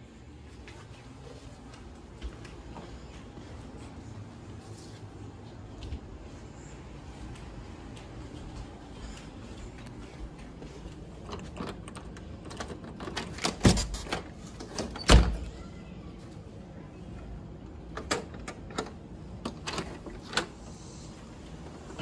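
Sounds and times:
door being unlocked and opened: 0:11.2 - 0:15.5, 0:17.9 - 0:20.5.

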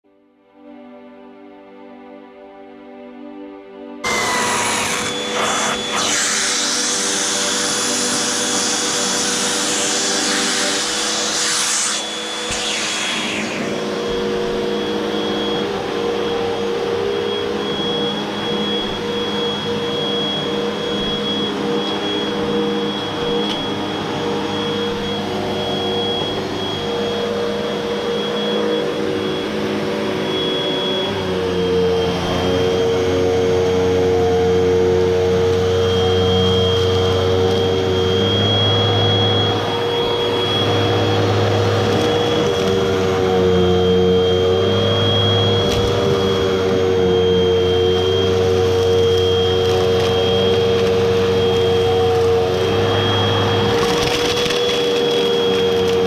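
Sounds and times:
vacuum cleaner whining on carpet: 0:04.0 - 0:56.0
loud hiss: 0:04.1 - 0:13.9.

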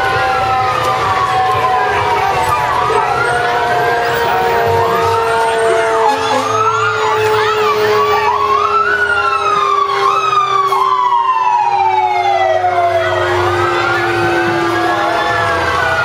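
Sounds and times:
fire engine sirens wailing: 0:00.0 - 0:16.0
truck engine rumble: 0:00.0 - 0:16.0.

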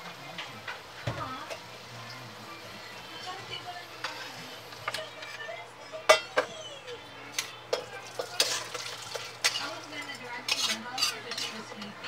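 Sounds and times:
food sizzling: 0:00.0 - 0:12.0
spatula clinking on pan: 0:06.1 - 0:06.5, 0:07.7 - 0:11.9
spatula scraping a frying pan: 0:08.2 - 0:12.0.

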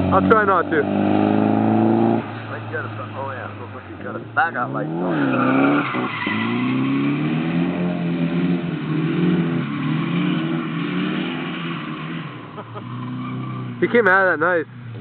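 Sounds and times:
car engine revving high: 0:00.0 - 0:14.0
tyres squealing: 0:02.3 - 0:07.2.

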